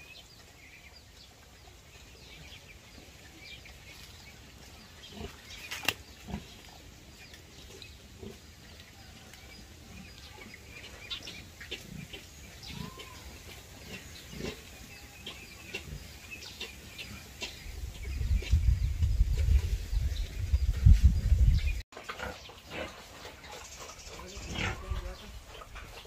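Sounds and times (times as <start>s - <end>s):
piglets calling: 10.3s - 17.6s.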